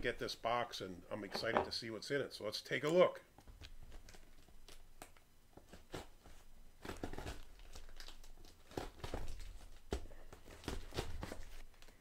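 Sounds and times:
packing tape tearing: 0:03.6 - 0:12.0.

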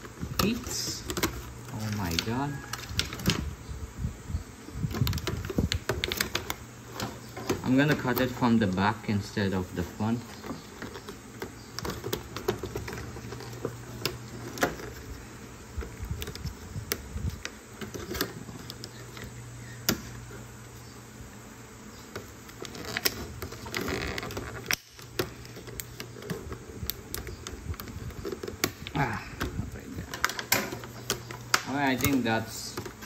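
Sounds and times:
steady low hum: 0:00.0 - 0:33.0
plastic crinkling: 0:22.5 - 0:33.0.

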